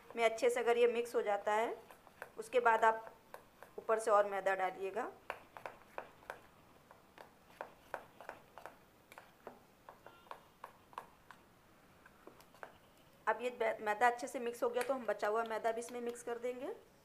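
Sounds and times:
hand mixing batter in steel bowl: 0.0 - 11.4.

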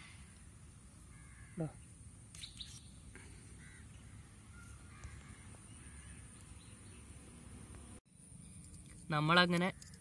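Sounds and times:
low outdoor ambience: 0.0 - 10.0
faint crows cawing: 0.9 - 2.0, 3.1 - 6.7.

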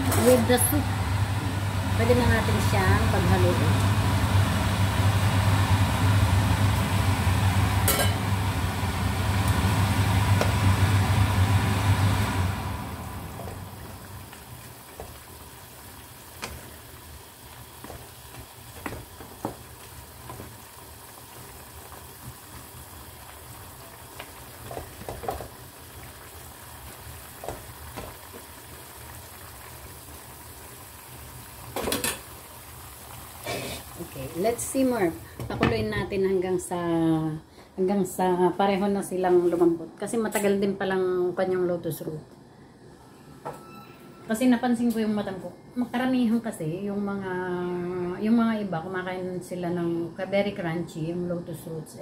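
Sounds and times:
broth simmering in a pan: 0.0 - 37.2
mechanical hum with low drone: 0.0 - 52.0.

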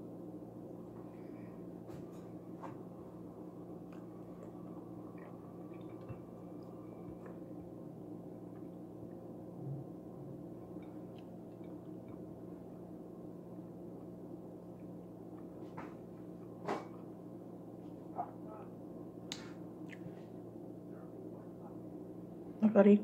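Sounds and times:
room hum: 0.0 - 23.0.

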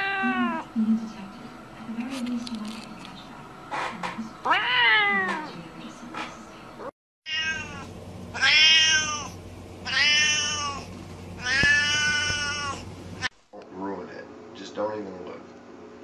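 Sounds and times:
cats meowing: 0.0 - 0.6, 4.4 - 5.5, 7.3 - 12.9.

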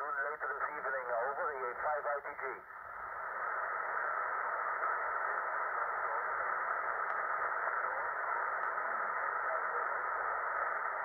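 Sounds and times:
radio static hiss: 0.0 - 11.0
faint clicks: 7.0 - 7.3.

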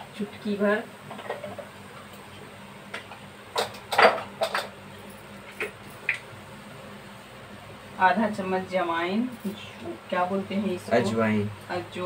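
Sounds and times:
kitchen containers and utensils clinking: 3.6 - 4.8.

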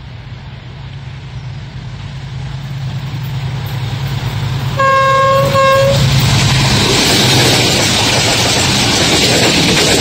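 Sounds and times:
locomotive engine rumble: 0.0 - 10.0
locomotive horn blast: 4.8 - 6.1.

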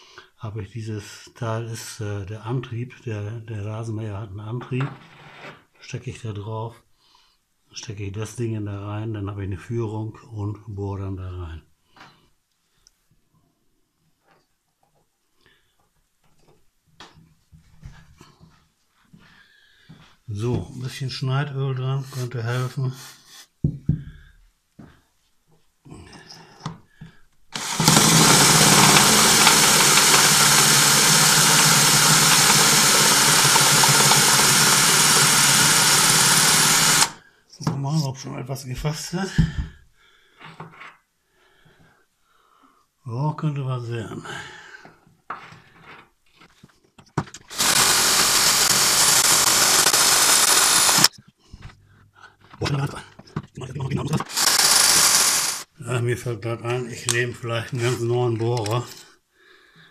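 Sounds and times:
cordless drill boring into steel: 27.6 - 37.2, 47.5 - 51.1, 54.2 - 55.7.

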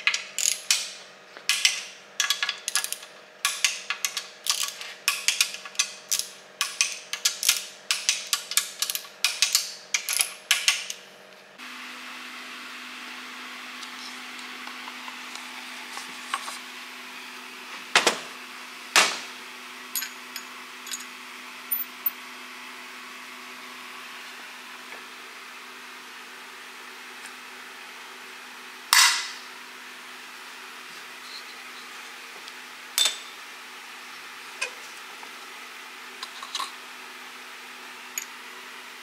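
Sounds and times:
metal parts clicking: 0.0 - 11.0
ratchet wrench clicking: 0.0 - 11.0.

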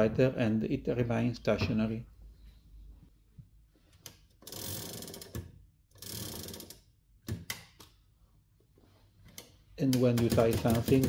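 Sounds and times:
sharp clicks and knocks: 9.3 - 11.0.

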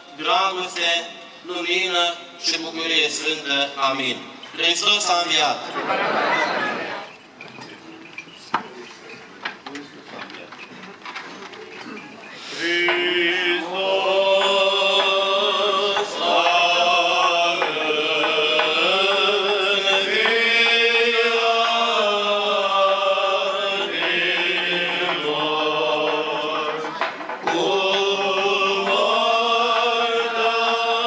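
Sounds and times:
voices chanting: 4.8 - 7.2, 12.4 - 31.0.

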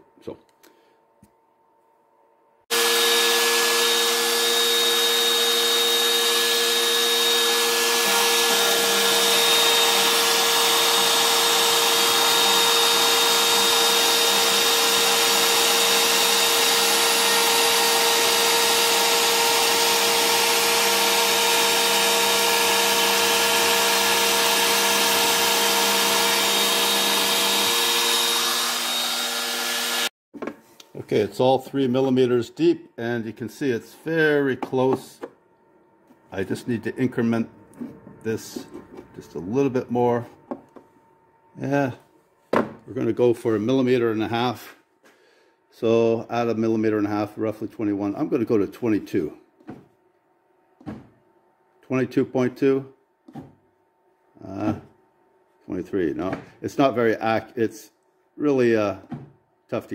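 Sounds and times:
router cutting at high speed: 2.7 - 30.1.

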